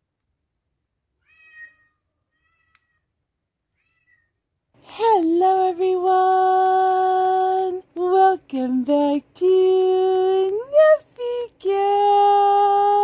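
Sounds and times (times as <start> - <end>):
woman singing slow tune: 4.8 - 13.0.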